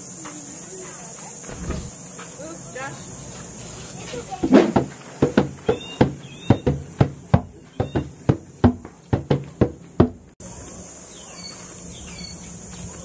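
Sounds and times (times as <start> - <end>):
hand drums struck with palms: 4.6 - 10.2.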